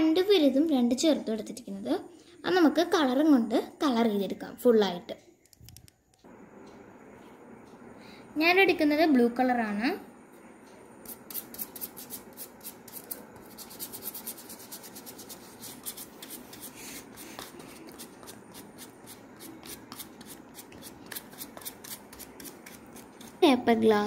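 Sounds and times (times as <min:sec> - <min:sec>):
paintbrush scratchy strokes: 0:11.0 - 0:23.4.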